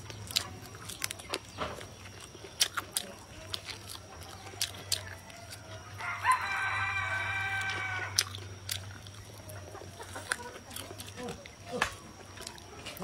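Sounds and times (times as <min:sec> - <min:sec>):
distant rooster crowing: 0:04.6 - 0:08.3.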